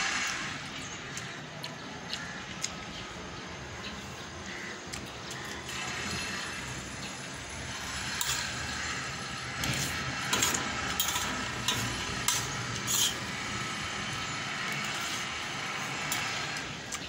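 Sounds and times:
steady background noise: 0:00.0 - 0:17.0
spoon scraping a metal plate: 0:07.7 - 0:13.8.

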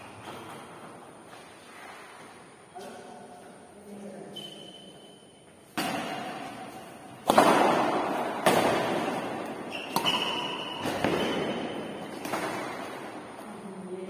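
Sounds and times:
badminton racket hitting shuttlecock: 0:05.7 - 0:13.4.

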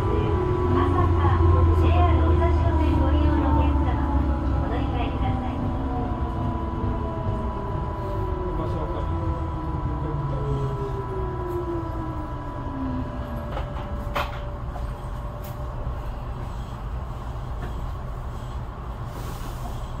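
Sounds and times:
electric train motor whine: 0:00.0 - 0:18.9
low rumble of train car: 0:00.0 - 0:20.0.

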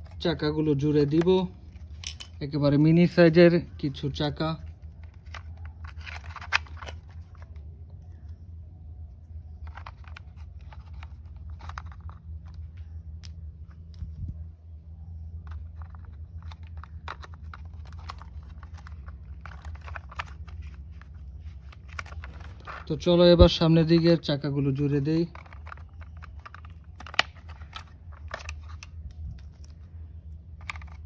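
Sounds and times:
steady low hum: 0:00.0 - 0:31.0
plastic toy wheels clicking: 0:24.9 - 0:28.9.

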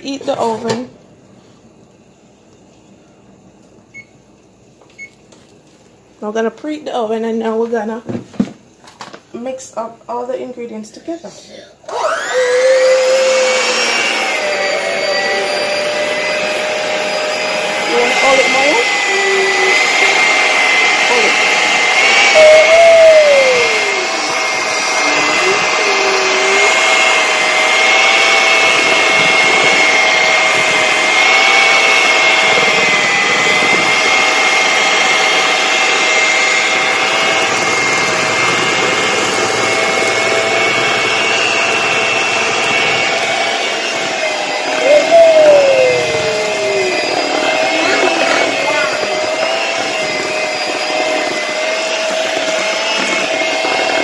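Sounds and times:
electric hand mixer whining: 0:11.8 - 0:54.0.

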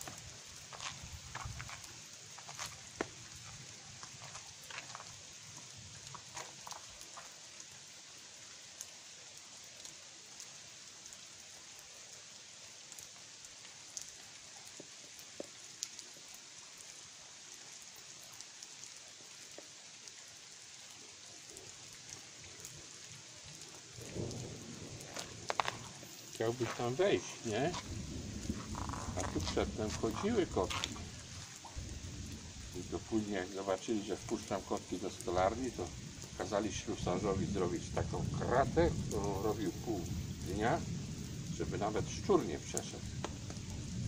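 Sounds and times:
footsteps on wet pavement: 0:00.0 - 0:07.9, 0:21.8 - 0:44.0
hiss of wet ground: 0:00.0 - 0:44.0.

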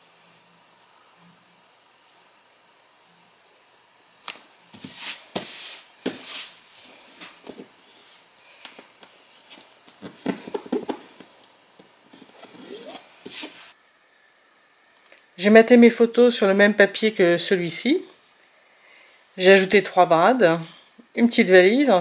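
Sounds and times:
paper rustling and sliding: 0:04.2 - 0:08.3, 0:12.2 - 0:13.8.

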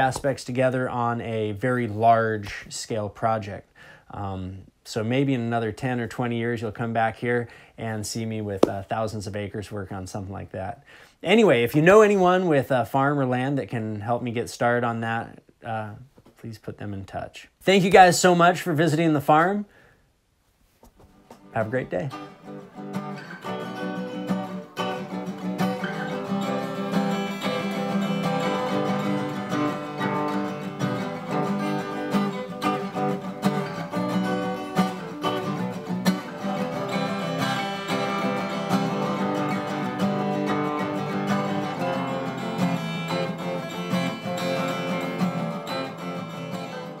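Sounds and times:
acoustic guitar strumming: 0:21.2 - 0:47.0.

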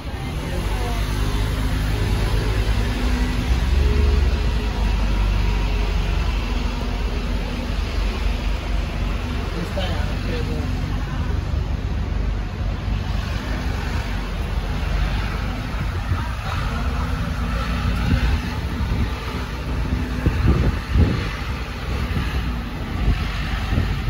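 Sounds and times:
rumble of road vehicles: 0:00.0 - 0:24.0.

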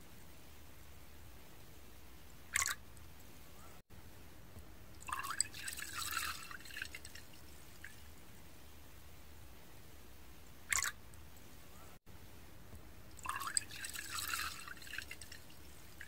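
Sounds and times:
liquid pouring into a cup: 0:05.0 - 0:08.0, 0:10.7 - 0:11.0, 0:13.2 - 0:16.0.

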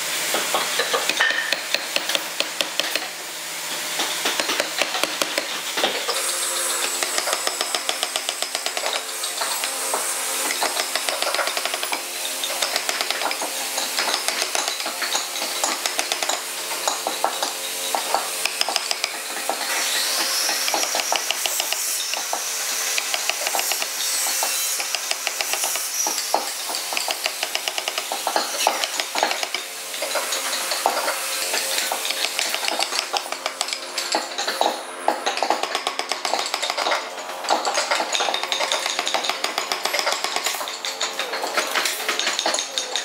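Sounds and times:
chisel scraping wood: 0:00.8 - 0:03.2, 0:04.0 - 0:12.0, 0:12.6 - 0:31.1, 0:31.8 - 0:33.8
mallet tapping chisel into wood: 0:00.9 - 0:03.1, 0:04.4 - 0:05.5, 0:18.4 - 0:19.2.

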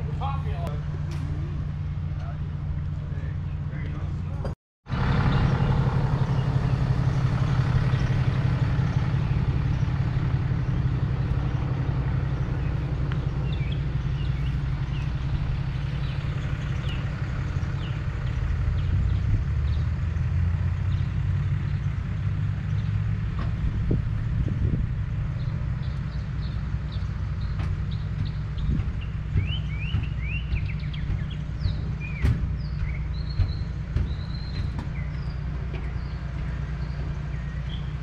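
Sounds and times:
low engine hum: 0:00.0 - 0:38.0.

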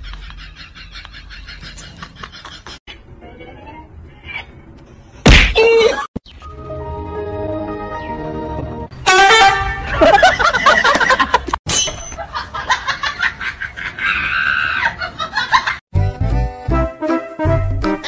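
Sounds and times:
high-pitched laughing and squealing: 0:12.1 - 0:15.8.

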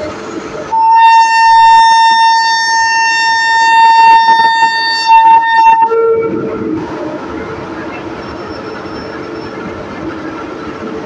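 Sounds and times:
locomotive horn blast: 0:00.7 - 0:06.8.

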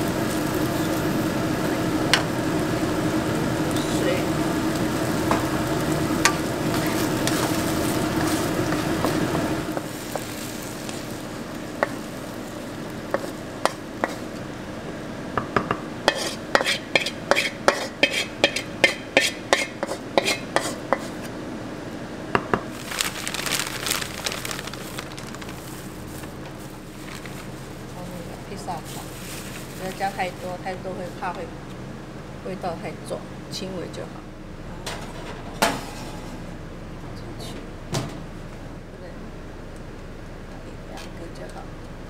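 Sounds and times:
rice sizzling in a wok: 0:00.0 - 0:21.3, 0:22.7 - 0:31.4
wooden spatula stirring: 0:06.2 - 0:14.3
spatula tapping and scraping: 0:11.8 - 0:12.0, 0:13.1 - 0:14.4, 0:15.4 - 0:21.3.

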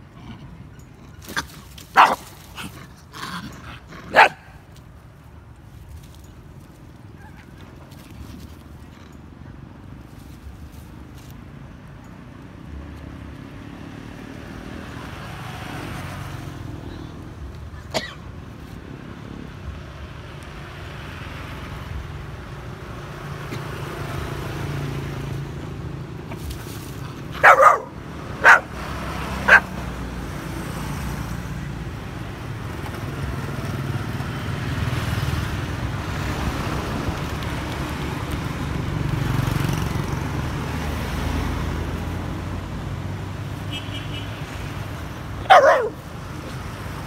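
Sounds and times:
dog barking: 0:02.0 - 0:02.3, 0:04.1 - 0:04.6, 0:27.4 - 0:28.8, 0:29.4 - 0:29.8, 0:45.4 - 0:46.1.

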